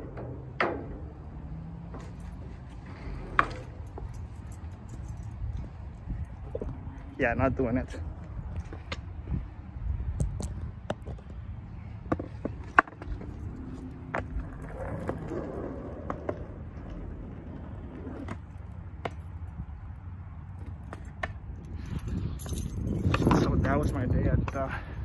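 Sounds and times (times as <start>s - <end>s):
skateboard wheels rumbling on concrete: 0.0s - 4.2s, 10.2s - 19.4s
skateboard clacks: 12.1s - 19.2s.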